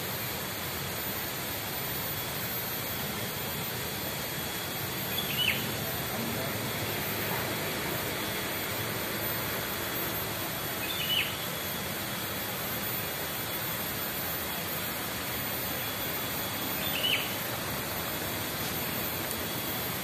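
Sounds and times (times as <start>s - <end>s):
rushing outdoor ambience: 0.0s - 20.0s
bird downward-sliding call: 5.1s - 5.7s, 10.8s - 11.4s, 16.5s - 17.4s.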